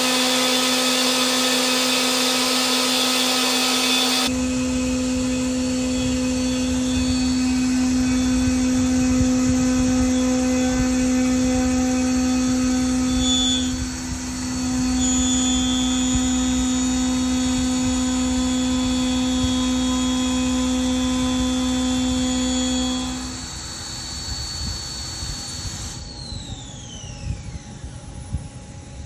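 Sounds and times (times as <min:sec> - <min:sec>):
falling whine: 0:00.0 - 0:29.0
milling machine cutting whine: 0:00.0 - 0:29.0.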